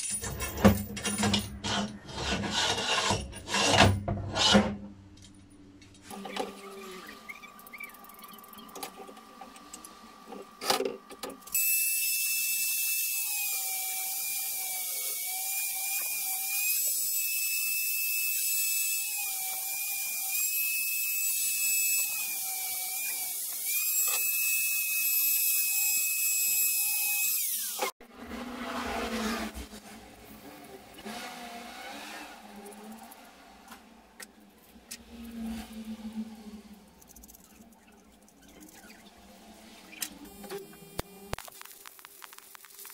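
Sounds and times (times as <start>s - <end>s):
angle grinder cutting steel rod: 1.5s - 4.7s, 11.5s - 29.6s.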